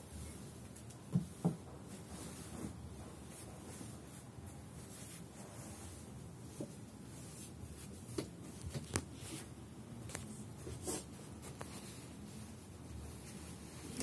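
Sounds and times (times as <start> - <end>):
light sharp taps and knocks: 0.8 - 3.6
blanket rustling: 1.8 - 8.1.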